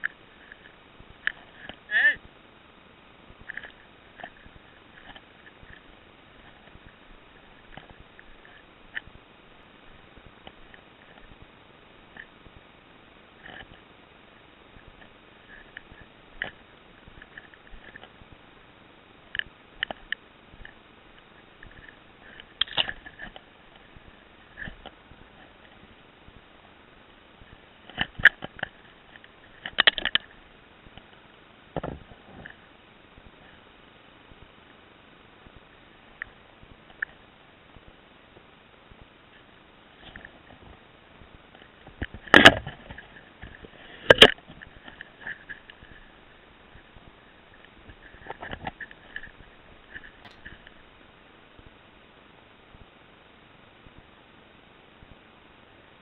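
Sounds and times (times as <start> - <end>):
faint steady hiss: 0.0 - 56.0
sharp clicks and crackles: 19.3 - 25.8, 27.4 - 31.2.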